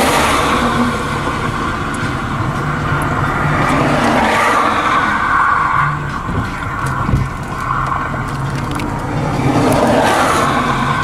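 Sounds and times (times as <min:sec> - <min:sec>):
car engine running: 0:00.0 - 0:11.0
low hum: 0:00.0 - 0:11.0.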